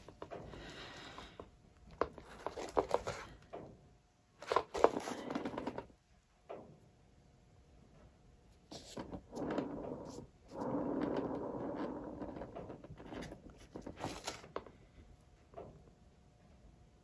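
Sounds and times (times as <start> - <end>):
spinner base rolling and scraping: 8.7 - 14.7.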